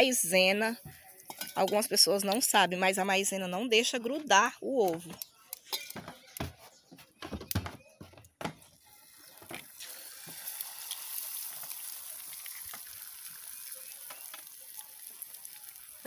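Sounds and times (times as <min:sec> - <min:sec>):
eggs sizzling in frying pan: 0:08.8 - 0:16.0.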